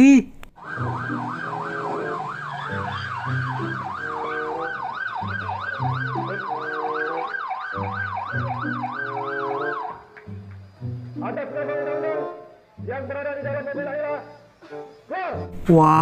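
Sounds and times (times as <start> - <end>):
police siren wailing: 0.6 - 10.4
background music: 0.6 - 16.0.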